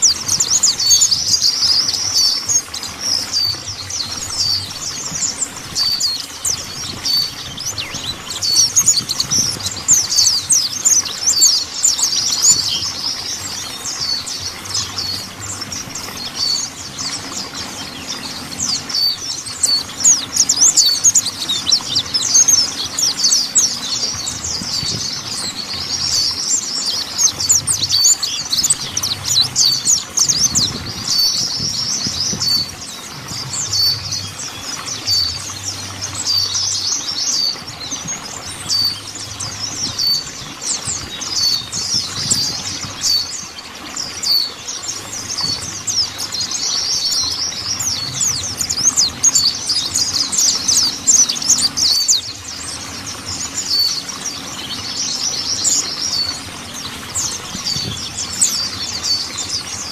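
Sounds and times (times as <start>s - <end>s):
bird twittering high chirps: 0.0s - 59.9s.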